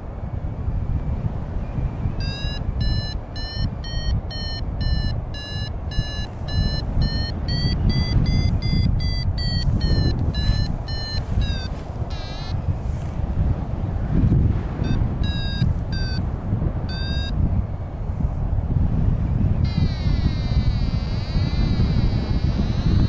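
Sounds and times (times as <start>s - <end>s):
wind rumble on microphone: 0.0s - 23.0s
variometer beeping: 2.2s - 12.7s, 14.8s - 17.4s, 19.6s - 23.0s.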